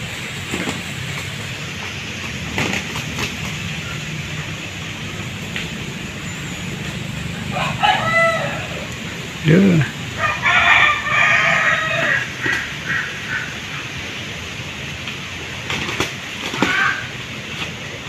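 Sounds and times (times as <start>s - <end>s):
low rumble and hiss: 0.0s - 18.0s
roosters fighting: 0.0s - 18.0s
rooster call: 7.2s - 13.9s, 16.5s - 17.2s.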